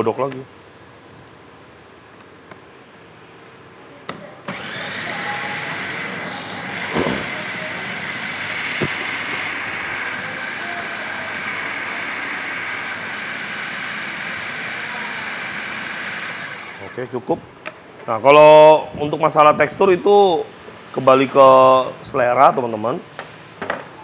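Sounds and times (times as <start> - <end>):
electric food grinder running: 4.5 - 17.1.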